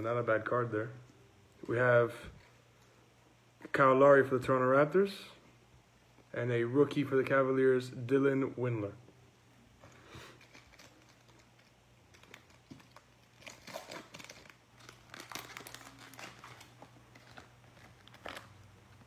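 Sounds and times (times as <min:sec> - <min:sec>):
wrapper crinkling: 0:10.3 - 0:19.0.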